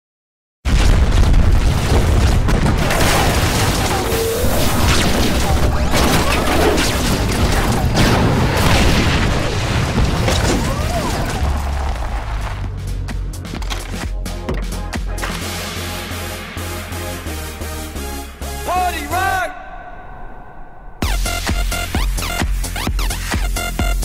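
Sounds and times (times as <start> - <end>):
explosion booms: 0.7 - 12.3
gunfire: 0.8 - 10.6
low rumble: 19.5 - 21.9.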